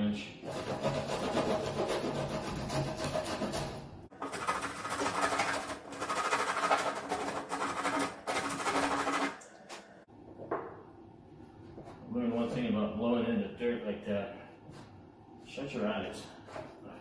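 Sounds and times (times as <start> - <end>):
wood rasp scraping: 0.4 - 9.3.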